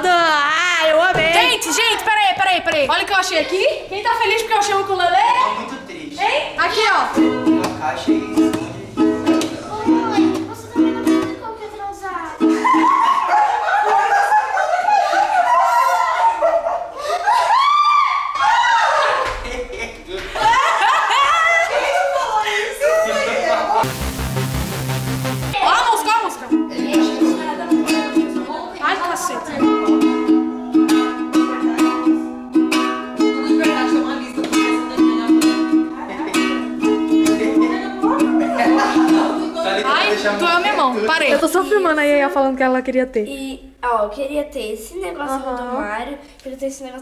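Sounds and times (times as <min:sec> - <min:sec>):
ukulele strumming chords: 0:07.1 - 0:11.5, 0:23.8 - 0:28.4, 0:29.6 - 0:39.7.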